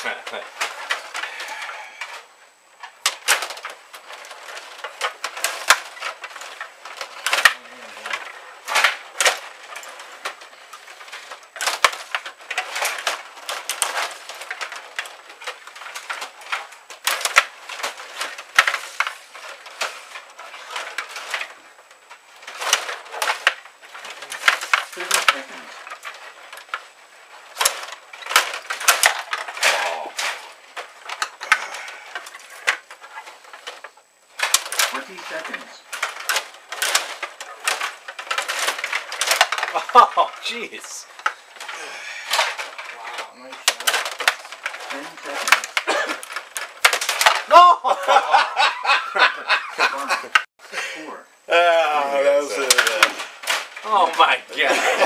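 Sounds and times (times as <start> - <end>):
plastic rod hockey game clatter: 0.0 - 50.5, 52.5 - 55.0.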